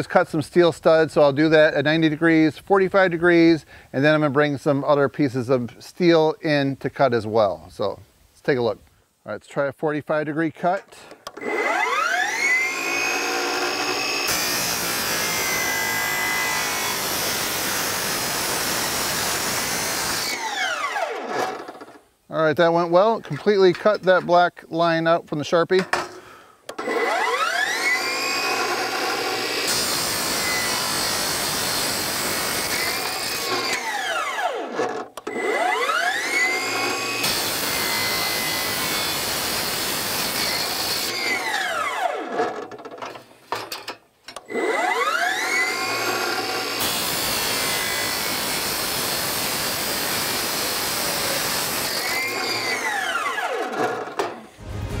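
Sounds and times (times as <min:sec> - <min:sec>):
chop saw motor whine: 0:11.3 - 0:21.9, 0:26.7 - 0:42.6, 0:44.4 - 0:54.4.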